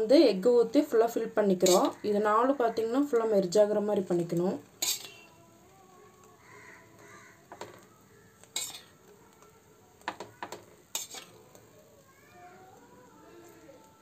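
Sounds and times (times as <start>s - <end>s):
metal spoon clinking on bowl: 4.8s - 5.3s, 8.5s - 8.9s.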